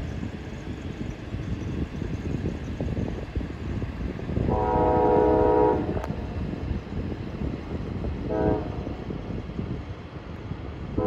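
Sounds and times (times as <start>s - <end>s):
locomotive horn blasts: 4.5s - 6.1s, 8.3s - 8.9s.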